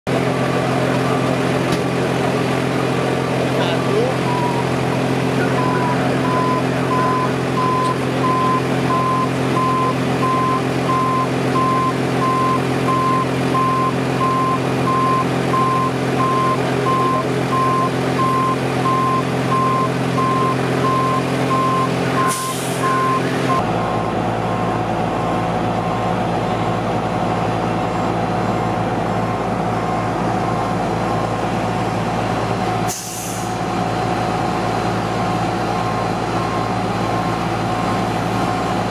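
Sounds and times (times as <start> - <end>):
large vehicle engine running: 0.0 - 38.9
truck back-up alarm beeping: 3.6 - 26.0, 35.6 - 38.9.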